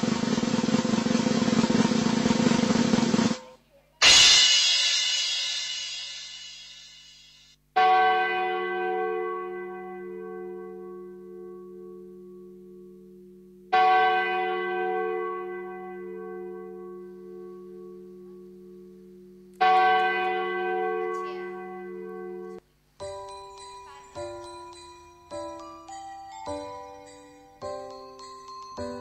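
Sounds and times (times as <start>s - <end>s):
large bell ringing: 7.8s - 22.6s.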